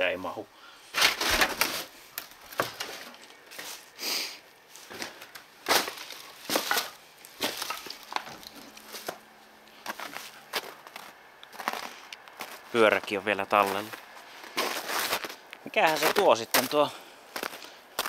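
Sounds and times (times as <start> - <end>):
crunching debris: 0.9 - 3.8, 4.8 - 9.2.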